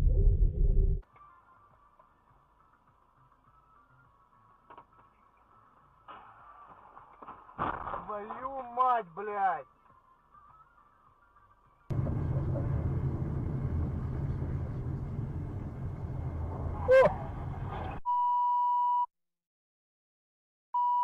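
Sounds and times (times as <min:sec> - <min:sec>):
road and engine rumble: 0:11.9 - 0:18.0
loud horn blast: 0:16.8 - 0:17.4.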